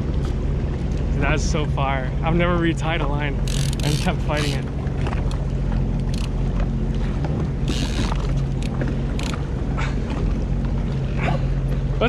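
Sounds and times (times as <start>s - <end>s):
watercraft engine running: 0.0s - 12.0s.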